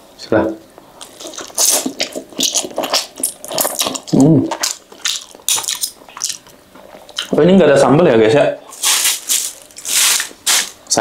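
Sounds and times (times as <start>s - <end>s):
lip smacks: 1.0s - 7.4s
slurping and wet chewing: 1.0s - 7.4s.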